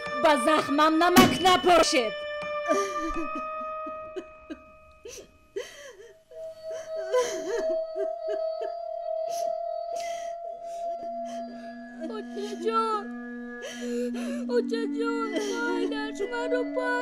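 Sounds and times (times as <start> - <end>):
soft background music: 0.0 - 17.0
woman sobbing: 2.6 - 17.0.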